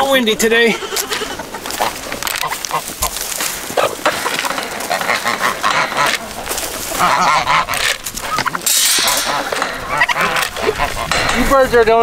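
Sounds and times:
farm animals calling: 0:00.0 - 0:12.0
wind on microphone: 0:07.2 - 0:12.0.

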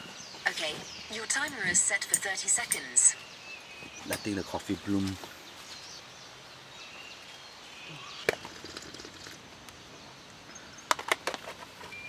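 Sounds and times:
background hiss: 0:00.0 - 0:12.0.

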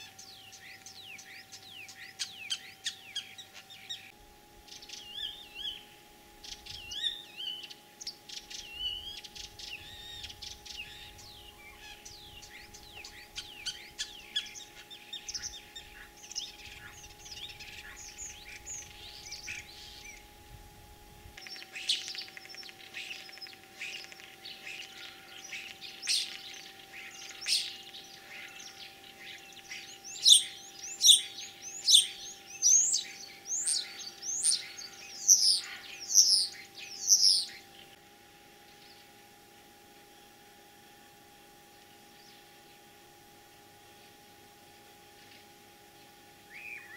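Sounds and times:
starling singing: 0:00.0 - 0:04.1, 0:06.5 - 0:20.3, 0:21.4 - 0:37.9.

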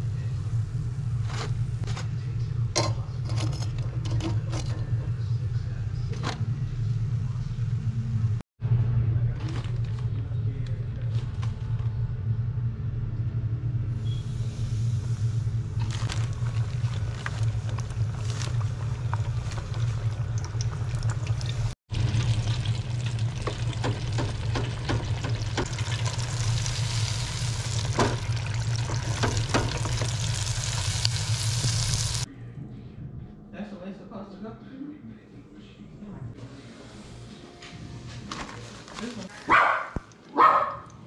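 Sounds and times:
low hum: 0:00.0 - 0:33.6
fish deep-frying in oil: 0:15.8 - 0:32.3.

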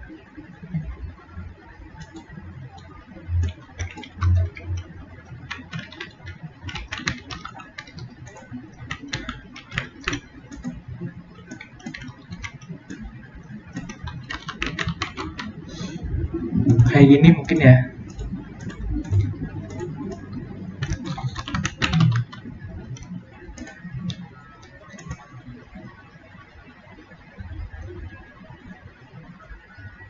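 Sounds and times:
keyboard keystroke clicks: 0:02.0 - 0:10.8, 0:11.4 - 0:13.1, 0:13.7 - 0:16.0, 0:16.6 - 0:25.3
dull low thumps: 0:15.6 - 0:20.8.

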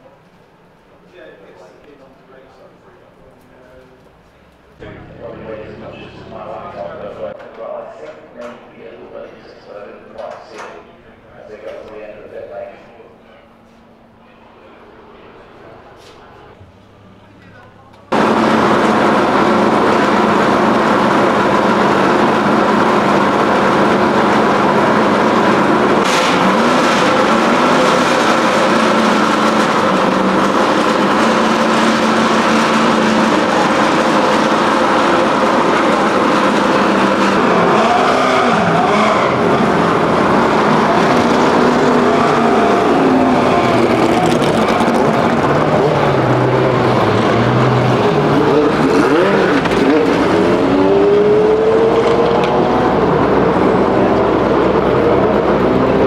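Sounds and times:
engine note rising in pitch: 0:04.8 - 0:07.4, 0:18.1 - 0:56.0
car engine idling and revving: 0:18.1 - 0:56.0.

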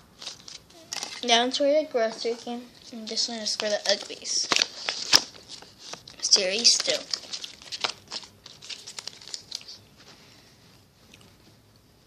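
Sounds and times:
paper crinkling and rustling: 0:00.2 - 0:01.4, 0:02.4 - 0:10.1.

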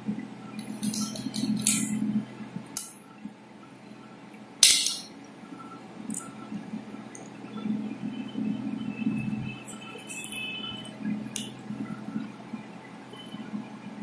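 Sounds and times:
sharp clack: 0:04.6 - 0:05.1.

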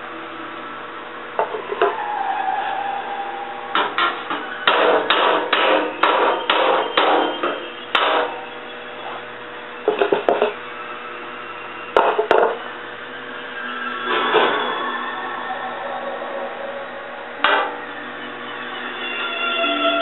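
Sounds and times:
hammer striking metal: 0:03.7 - 0:08.5, 0:17.4 - 0:17.8.

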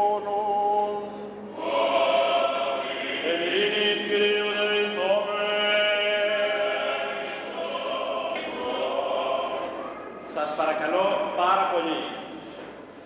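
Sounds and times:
voices chanting long held notes: 0:00.0 - 0:10.3.

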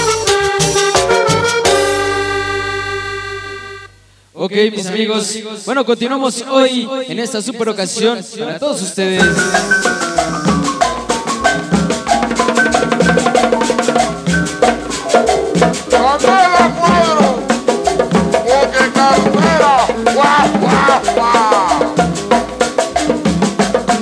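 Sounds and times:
latin dance music: 0:00.0 - 0:03.9, 0:09.2 - 0:24.0
swooping sliding tones: 0:09.2 - 0:23.2.

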